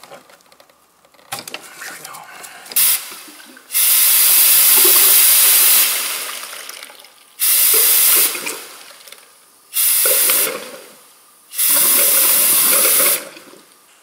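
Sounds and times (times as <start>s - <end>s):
hissing blasts of air: 2.8s - 6.5s, 7.4s - 8.9s, 9.7s - 13.5s
liquid gurgling: 2.8s - 13.7s.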